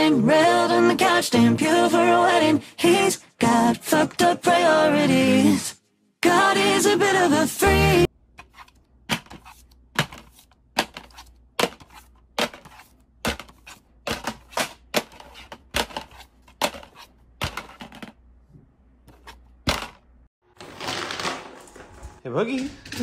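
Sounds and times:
plastic cases clacking on wood: 10.0s - 18.2s.

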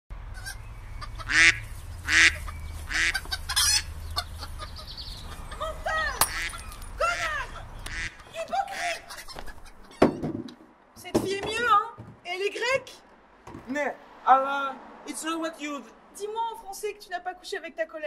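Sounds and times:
duck quacks and honks: 0.4s - 3.9s, 6.3s - 10.0s.

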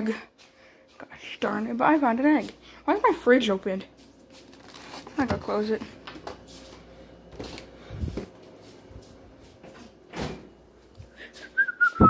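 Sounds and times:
person whistling a tune: 11.4s - 12.0s.

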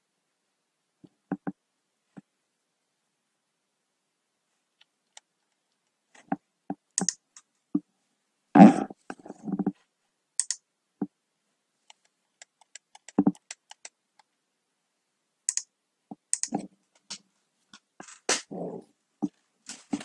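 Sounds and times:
computer keyboard typing: 7.0s - 7.2s, 12.4s - 14.0s, 16.3s - 16.6s.

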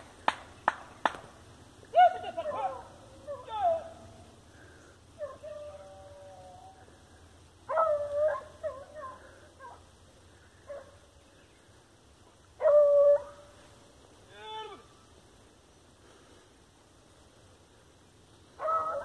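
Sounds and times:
hunting dog baying: 7.7s - 9.9s, 18.6s - 19.0s.

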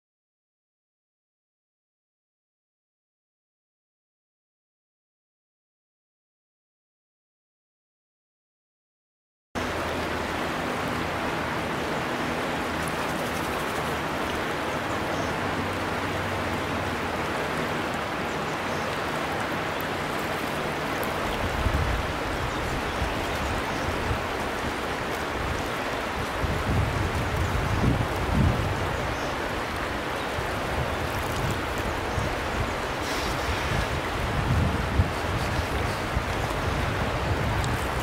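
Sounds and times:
water running over pebbles: 11.5s - 15.0s, 15.6s - 38.0s.

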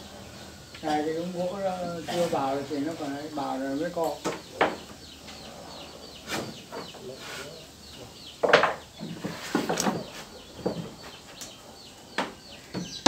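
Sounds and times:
bird chirping: 0.0s - 13.0s
hand tools knocking on wood: 4.2s - 5.0s, 8.4s - 11.2s, 12.2s - 13.0s.

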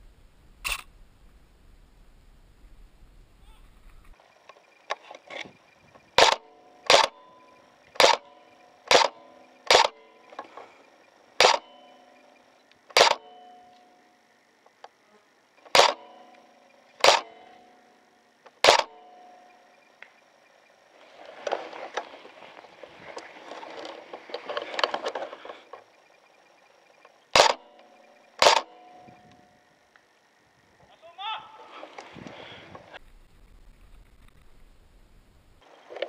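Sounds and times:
airsoft rifle shots: 6.1s - 7.3s, 7.9s - 10.6s, 11.4s - 11.9s, 12.9s - 13.4s, 15.6s - 17.6s, 18.6s - 19.4s, 27.3s - 29.0s
pellets striking a person: 15.7s - 16.1s.

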